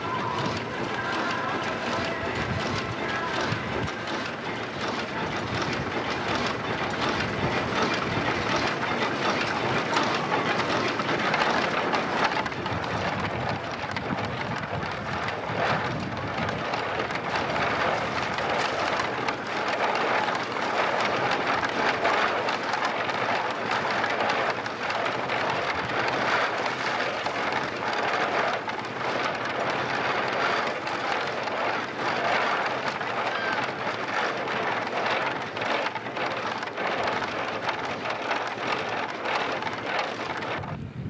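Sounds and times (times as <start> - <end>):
chaff cutter chopping hay: 16.8 - 40.5.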